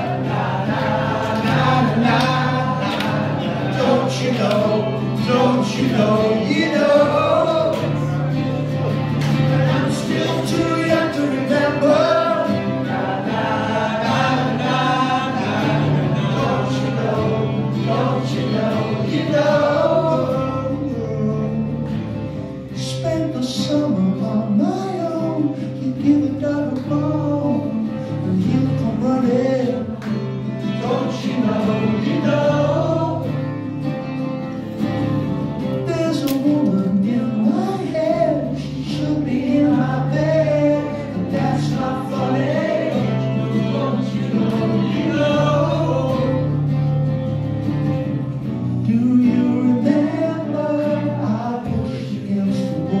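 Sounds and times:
man singing into a microphone: 0:00.0 - 0:08.3, 0:09.6 - 0:22.1, 0:22.7 - 0:33.6, 0:35.8 - 0:46.7, 0:48.7 - 0:53.0
men singing along: 0:00.0 - 0:21.7, 0:25.4 - 0:33.6, 0:35.8 - 0:46.7
acoustic guitar strumming: 0:00.0 - 0:53.0.

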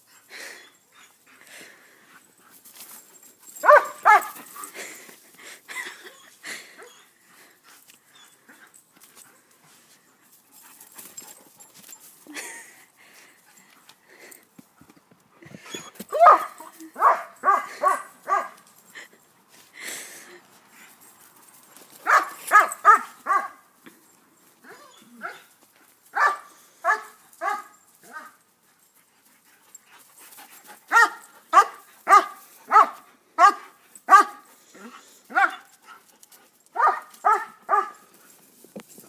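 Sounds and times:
dog barking: 0:03.6 - 0:04.4, 0:16.2 - 0:18.6, 0:22.1 - 0:23.6, 0:26.2 - 0:27.7, 0:30.9 - 0:34.4, 0:35.3 - 0:35.7, 0:36.8 - 0:38.0.

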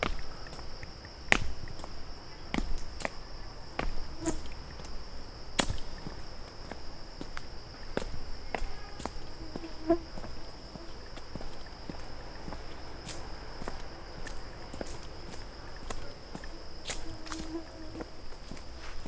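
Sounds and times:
footsteps on trail: 0:00.0 - 0:19.0
high-pitched insect drone: 0:00.0 - 0:19.0.

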